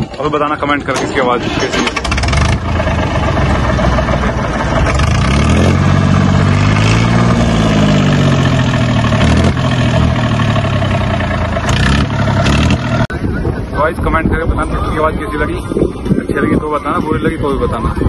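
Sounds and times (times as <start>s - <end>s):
tractor diesel engine revving: 0.0s - 13.2s.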